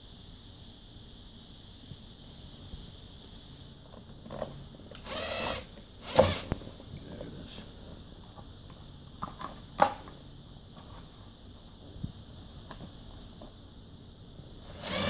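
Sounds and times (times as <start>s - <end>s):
impact driver burst: 5.0s - 6.5s, 14.6s - 15.0s.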